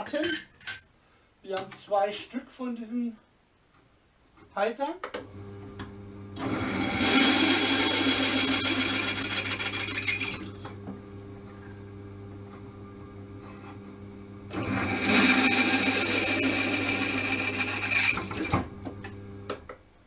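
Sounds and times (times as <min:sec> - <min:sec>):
drill press motor hum: 0:05.3 - 0:19.6
drill bit cutting metal: 0:06.4 - 0:10.5, 0:14.5 - 0:18.6
high squeal: 0:06.4 - 0:10.5, 0:14.6 - 0:18.6.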